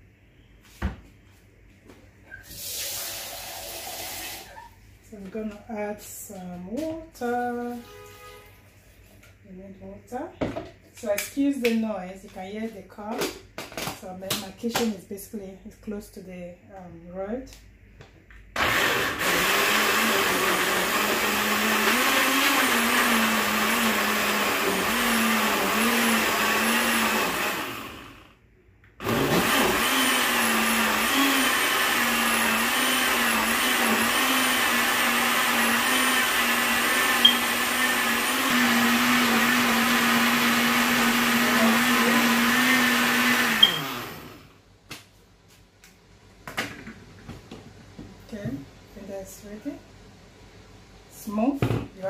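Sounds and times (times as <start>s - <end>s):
electric blender running: 18.6s - 28.4s, 29.0s - 44.6s.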